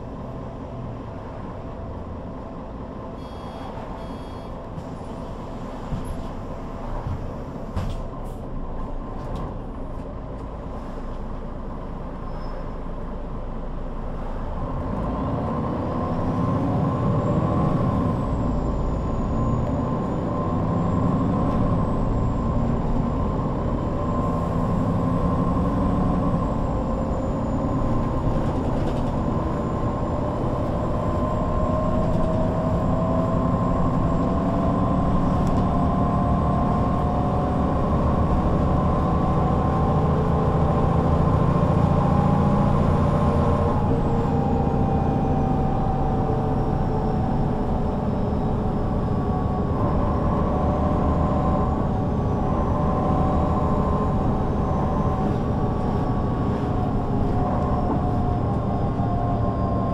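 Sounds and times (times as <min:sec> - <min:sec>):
bus diesel engine running: 0:00.0 - 0:59.9
thin high whistle: 0:03.2 - 0:04.5
drivetrain whine: 0:16.0 - 0:59.9.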